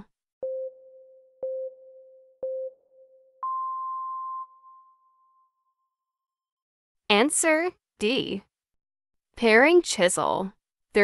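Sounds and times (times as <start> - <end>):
short low beeps: 0.4 - 5.4
long higher beep: 0.4 - 5.8.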